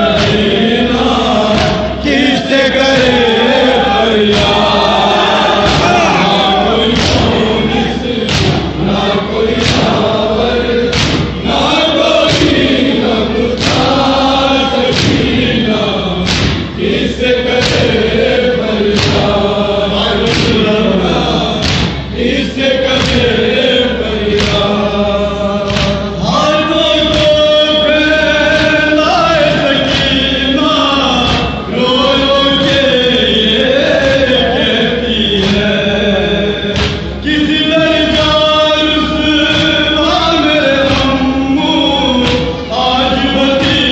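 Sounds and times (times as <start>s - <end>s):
lead reciter chanting: 0.0s - 43.9s
men chanting in unison: 0.0s - 43.9s
hands beating on chests: 4.3s - 7.5s, 8.2s - 8.8s, 10.9s - 11.3s, 19.0s - 19.4s, 21.6s - 22.0s, 24.4s - 24.8s.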